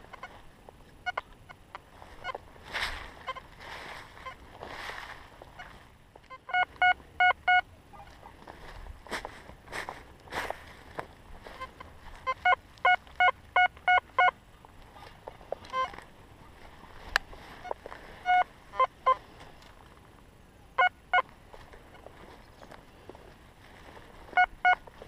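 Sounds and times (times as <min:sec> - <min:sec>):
metal detector beeps: 0:06.3 - 0:07.7, 0:11.5 - 0:14.4, 0:15.6 - 0:16.0, 0:17.6 - 0:19.2, 0:24.3 - 0:24.8.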